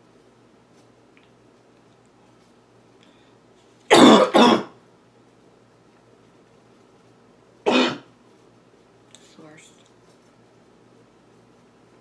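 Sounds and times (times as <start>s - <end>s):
girl's barking cough: 3.9s - 4.8s, 7.7s - 8.1s.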